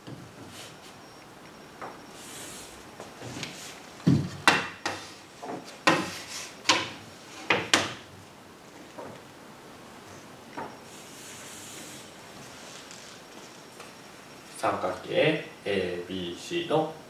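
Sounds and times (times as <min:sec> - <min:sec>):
chalk scraping on board: 0:05.9 - 0:06.6.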